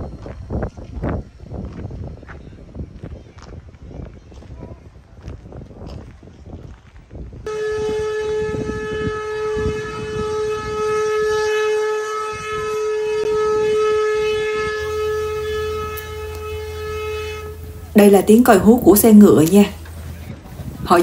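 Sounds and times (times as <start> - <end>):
long steady hooter blast: 7.5 - 21.0.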